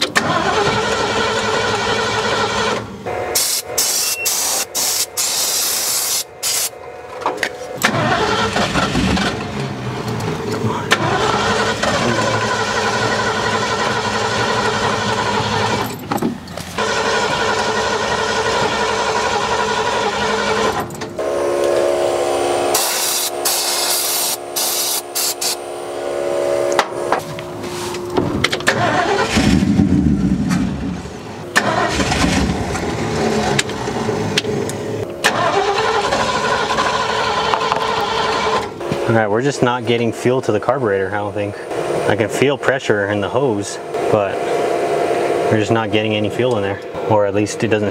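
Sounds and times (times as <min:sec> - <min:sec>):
engine cranking on starter: 0:00.0 - 0:03.6, 0:07.8 - 0:21.2, 0:28.5 - 0:38.8
aerosol spray hissing: 0:03.4 - 0:06.7, 0:22.7 - 0:25.6.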